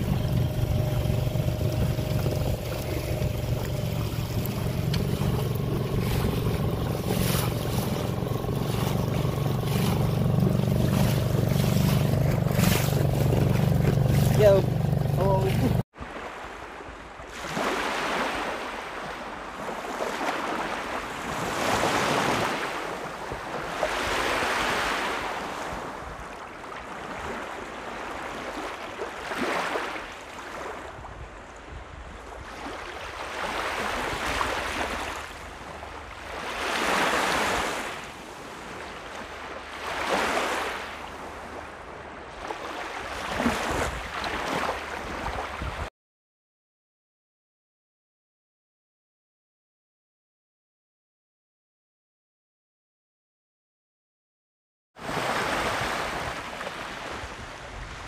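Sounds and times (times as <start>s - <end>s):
wind rumble on microphone: 0.0s - 15.8s, 30.5s - 36.6s, 41.0s - 45.9s, 55.7s - 58.0s
lake waves lapping on beach: 0.0s - 45.9s, 55.0s - 58.0s.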